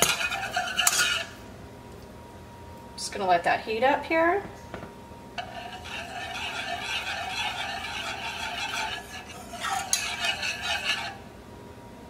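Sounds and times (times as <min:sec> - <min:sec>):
whisk scraping a saucepan: 0:00.0 - 0:01.4, 0:05.4 - 0:11.3.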